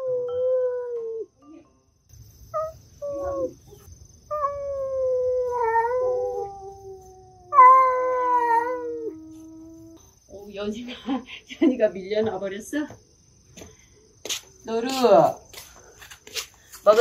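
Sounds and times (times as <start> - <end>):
cats yowling: 2.6 - 10.0.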